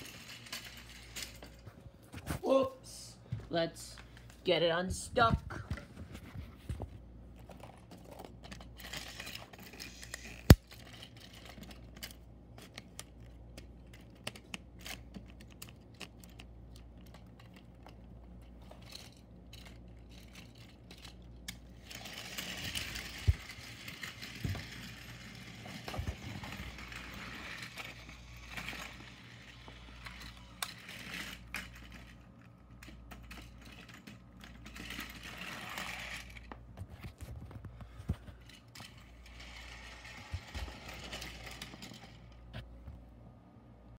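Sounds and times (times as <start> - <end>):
rustling and clattering: 5.5 - 43.1
plastic toy train clicking: 8.4 - 18.0, 18.8 - 32.2, 32.8 - 36.5, 38.4 - 42.3.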